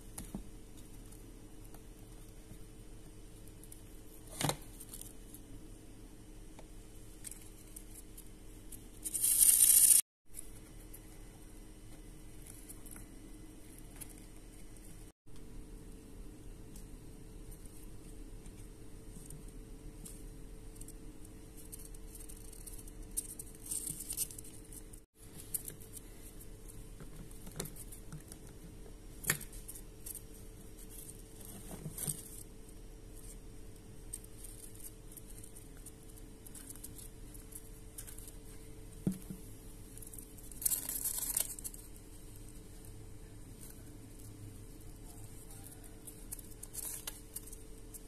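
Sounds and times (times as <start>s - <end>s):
steady low hum: 10.3s - 48.0s.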